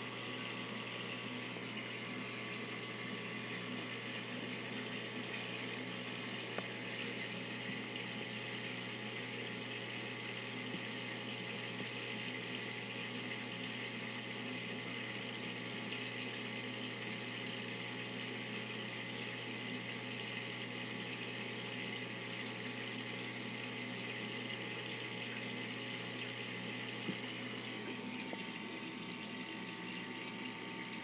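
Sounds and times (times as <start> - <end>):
aquarium water rushing: 0.0 - 31.0
low pump hum: 0.0 - 31.0
air lift bubbling: 26.3 - 31.0.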